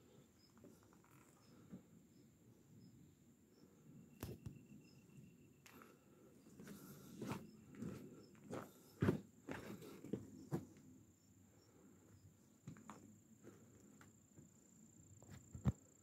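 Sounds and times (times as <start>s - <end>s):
footsteps on wooden decking: 6.6s - 10.8s, 12.6s - 14.6s.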